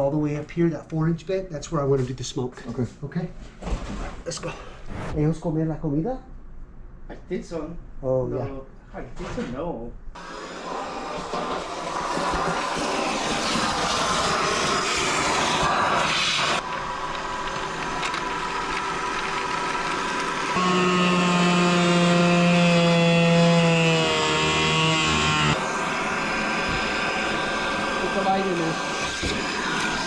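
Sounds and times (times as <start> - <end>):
shop vacuum running: 10.2 - 30.0.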